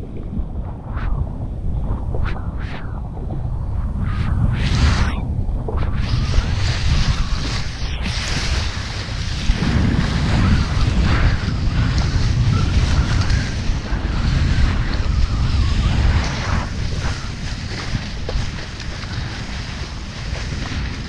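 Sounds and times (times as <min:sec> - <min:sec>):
wind buffeting microphone: 0:00.0 - 0:21.0
board skimming across water: 0:04.7 - 0:21.0.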